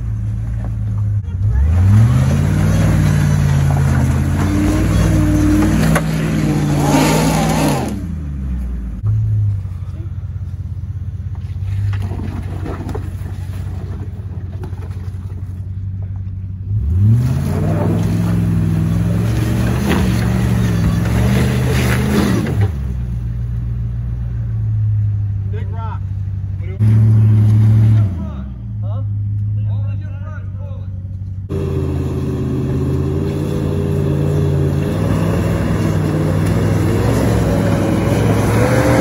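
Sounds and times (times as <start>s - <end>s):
engine revving and idling: 0.0s - 11.8s, 15.5s - 23.2s, 31.2s - 39.0s.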